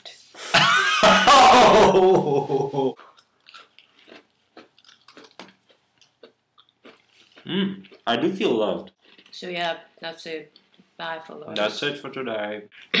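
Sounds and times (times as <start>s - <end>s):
cookie crunching and chewing: 3.0s - 8.1s.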